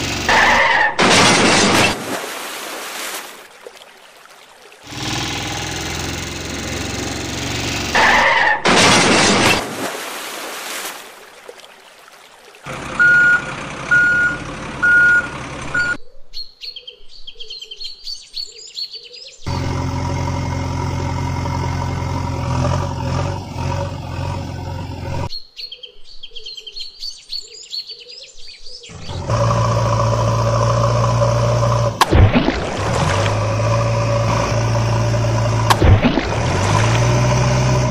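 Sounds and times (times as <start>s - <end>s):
heavy engine running: 0.0s - 0.4s, 4.9s - 9.3s, 12.7s - 16.0s, 19.5s - 25.3s, 28.9s - 37.9s
water splash: 0.3s - 6.2s, 7.5s - 12.8s, 30.6s - 37.9s
birds chirping: 12.4s - 19.5s, 25.2s - 29.4s
reversing alarm beeping: 13.0s - 16.0s.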